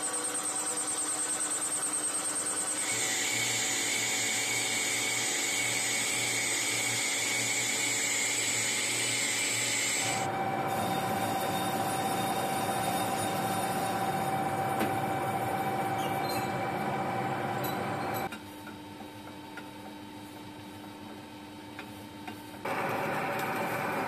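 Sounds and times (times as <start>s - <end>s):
high-pitched whine: 0.0s - 2.9s, 10.0s - 18.3s
metal lathe machining: 0.0s - 18.3s.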